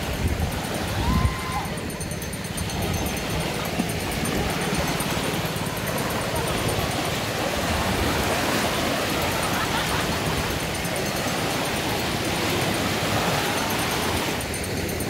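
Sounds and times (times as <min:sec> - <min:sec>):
wind buffeting microphone: 0:00.0 - 0:09.4
small waves washing ashore: 0:00.0 - 0:15.0.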